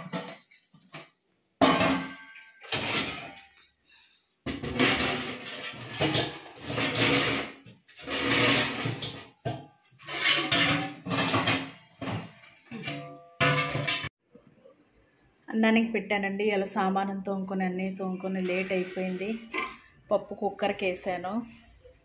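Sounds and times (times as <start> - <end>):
steel pots clanking: 4.6 - 14.1.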